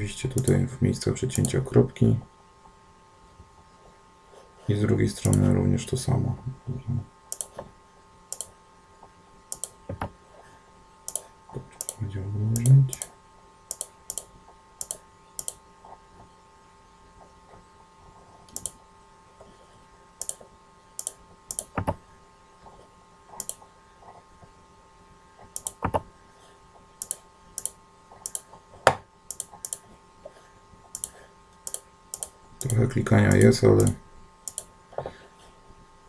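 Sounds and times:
computer mouse buttons clicking: 0.3s - 0.6s, 1.4s - 1.6s, 5.2s - 5.5s, 7.3s - 7.6s, 8.3s - 8.6s, 9.5s - 10.1s, 11.1s - 12.0s, 12.6s - 13.1s, 13.7s - 15.6s, 18.5s - 18.8s, 20.2s - 20.4s, 21.0s - 22.0s, 23.4s - 23.6s, 25.5s - 26.0s, 27.0s - 28.5s, 29.3s - 29.8s, 30.9s - 34.7s.

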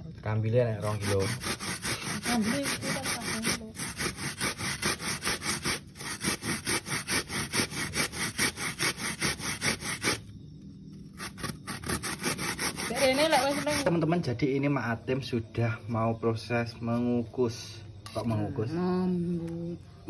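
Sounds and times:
coconut grating on metal grater: 0.7s - 10.3s, 11.0s - 14.0s.

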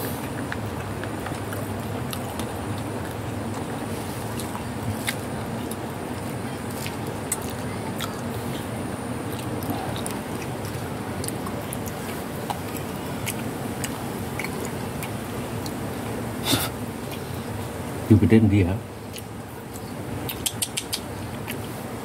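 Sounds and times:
cats chewing crunchy snack: 0.0s - 17.5s
steady background hiss: 0.0s - 22.0s.

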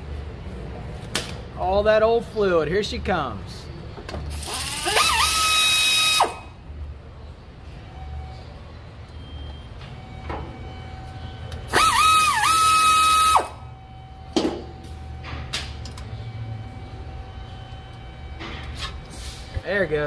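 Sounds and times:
air ratchet whine: 4.3s - 6.6s, 11.5s - 13.7s.

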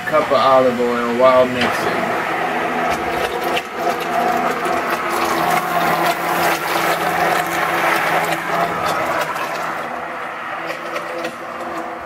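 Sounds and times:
hand blender running: 2.0s - 12.0s.

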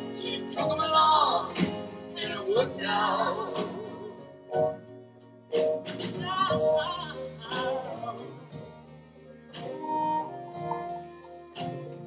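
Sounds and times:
live band playing: 0.0s - 12.0s.

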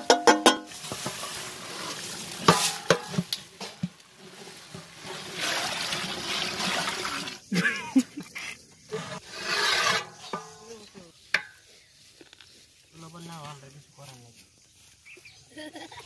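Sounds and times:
knocks against pot: 0.0s - 0.7s
water pouring and splashing: 0.0s - 8.3s
wooden spatula stirring rice: 0.2s - 5.2s
rice pouring into pot: 4.2s - 7.4s.

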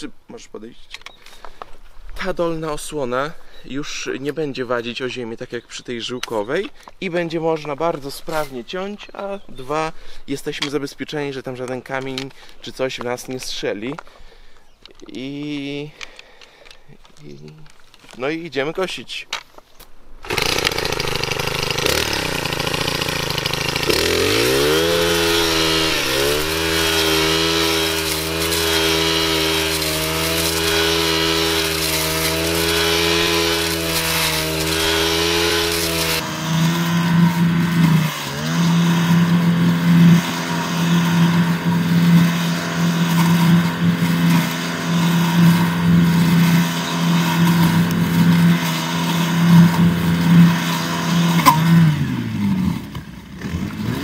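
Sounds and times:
brush cutter engine running: 20.2s - 54.0s.

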